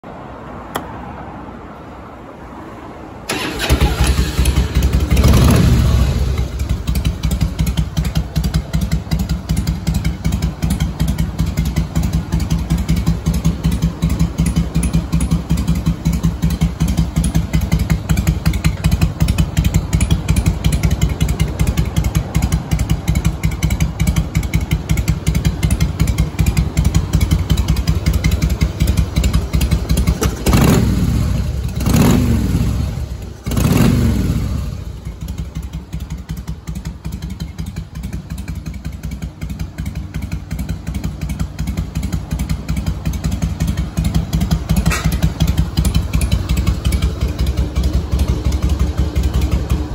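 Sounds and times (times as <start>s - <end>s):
engine revving: 3.3s - 23.3s, 26.0s - 35.4s
motorcycle engine idling: 3.3s - 49.9s.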